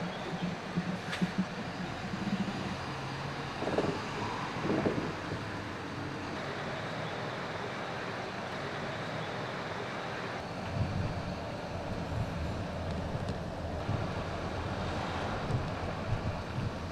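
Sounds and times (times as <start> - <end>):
bus diesel engine running: 0.0 - 16.9
road and tyre noise: 0.0 - 16.9.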